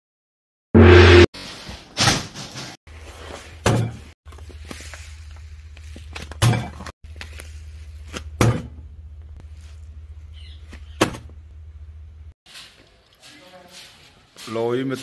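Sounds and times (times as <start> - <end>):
loud thumps of sacks and metal: 1.8 - 2.8.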